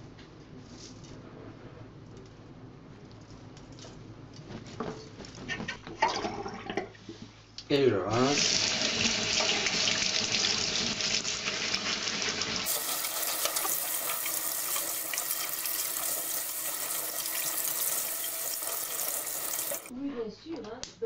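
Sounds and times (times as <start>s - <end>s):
tubers rinsed in metal strainer: 8.1s - 19.9s
tap water running into sink: 8.4s - 19.9s.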